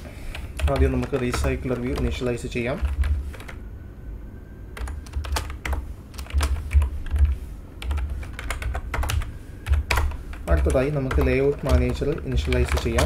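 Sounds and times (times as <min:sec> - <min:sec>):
typing on computer keyboard: 0:00.3 - 0:03.6, 0:04.8 - 0:13.0.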